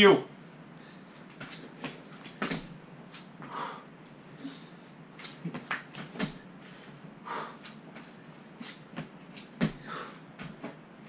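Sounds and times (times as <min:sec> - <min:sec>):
breathy exhales: 0:03.5 - 0:04.8, 0:06.7 - 0:07.6, 0:09.8 - 0:10.2
hands and feet thudding on floor: 0:05.2 - 0:06.4, 0:08.0 - 0:10.8.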